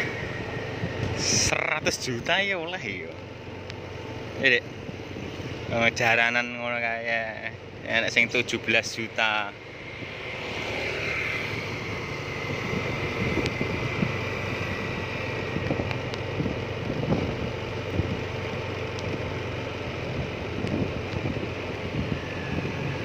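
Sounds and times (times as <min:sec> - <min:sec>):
wind on microphone: 0:00.0 - 0:01.6, 0:11.4 - 0:18.3, 0:20.1 - 0:23.0
vehicle engine running: 0:00.0 - 0:23.0.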